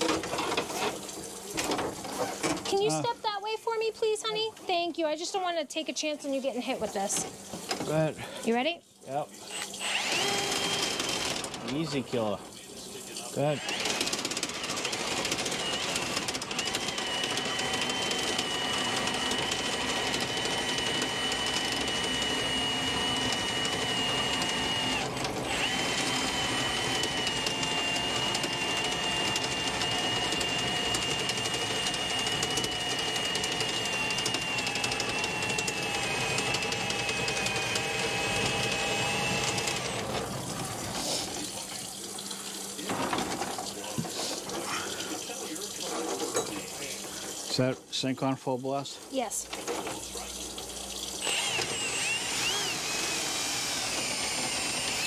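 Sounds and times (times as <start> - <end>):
drain cleaner motor whine: 9.5 - 12.4, 13.4 - 47.7, 49.5 - 55.0.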